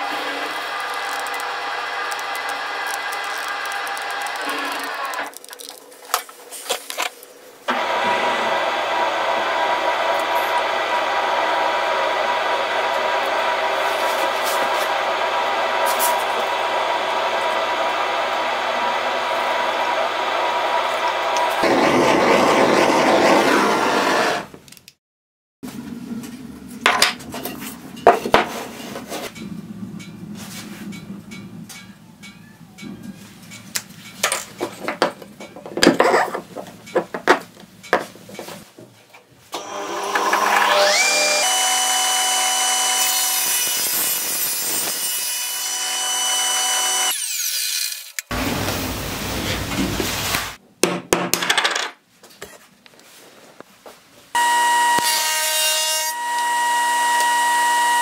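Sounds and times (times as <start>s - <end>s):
saw cutting through board: 0.0s - 5.3s, 7.7s - 24.5s, 39.6s - 48.3s, 54.4s - 58.0s
table saw whining: 0.0s - 5.3s, 7.7s - 24.5s, 39.6s - 48.4s, 54.4s - 58.0s.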